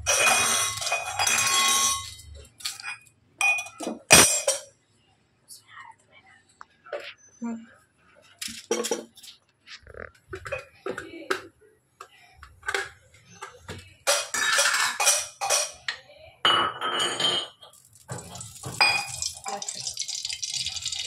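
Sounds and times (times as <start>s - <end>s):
metal utensils clinking on pan: 0.0s - 4.7s, 14.0s - 15.9s, 16.7s - 21.0s
oil hissing in pan: 17.8s - 21.0s.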